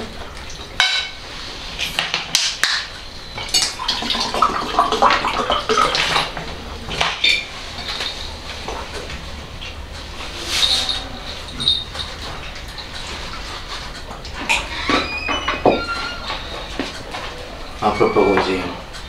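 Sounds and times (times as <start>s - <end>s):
dishes and cutlery clinking: 0.8s - 1.2s, 10.4s - 15.9s.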